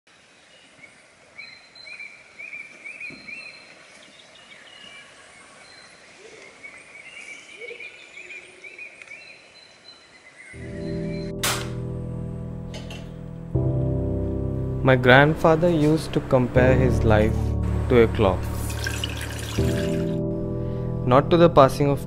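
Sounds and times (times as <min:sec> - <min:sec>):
birds chirping: 0:00.2 - 0:13.4
music: 0:10.6 - 0:22.0.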